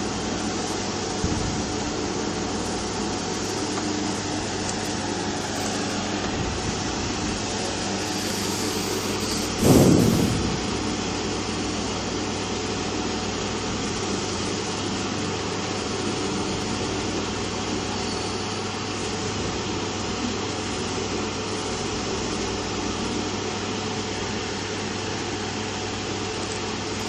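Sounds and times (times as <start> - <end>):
hot air blowing through nozzle: 0.0 - 11.8
low hum: 1.2 - 11.9.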